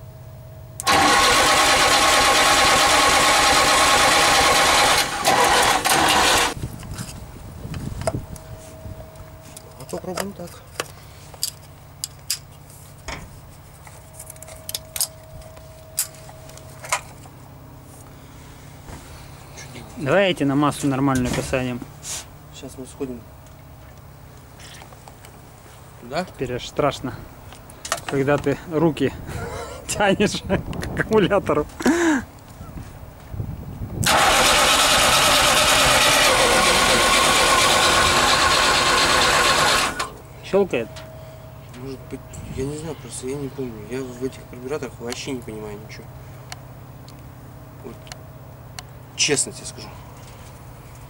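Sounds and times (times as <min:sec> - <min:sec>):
steady low hum: 0:00.0 - 0:00.9, 0:06.4 - 0:34.0, 0:36.8 - 0:51.0
starter motor cranking engine: 0:00.8 - 0:06.6, 0:34.0 - 0:40.2.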